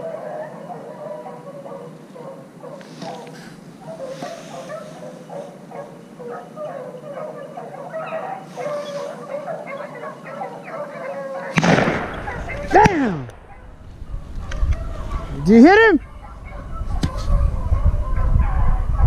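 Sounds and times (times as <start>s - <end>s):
dogs baying and yelping: 0.0s - 19.0s
shotgun shot: 11.6s - 13.4s.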